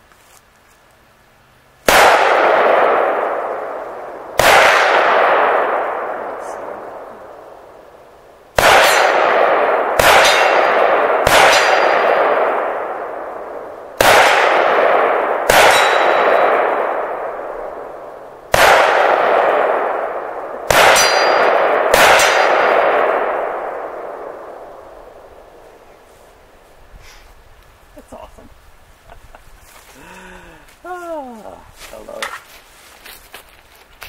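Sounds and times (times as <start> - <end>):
rifle shots: 1.8 - 7.5, 8.5 - 25.6
steel target ringing clang: 10.2 - 10.7, 11.5 - 12.1, 15.6 - 16.6, 20.9 - 22.6.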